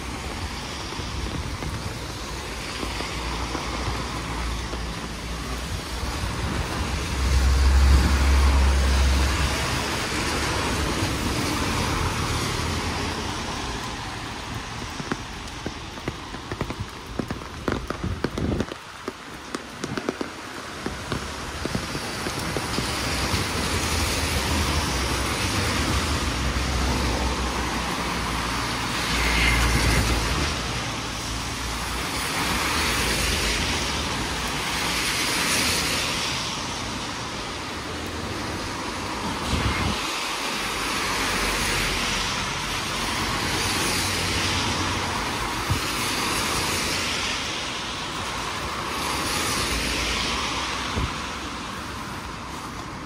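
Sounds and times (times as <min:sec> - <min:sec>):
steady rain: 0:00.0 - 0:53.0
tyres hissing on wet road: 0:00.0 - 0:53.0.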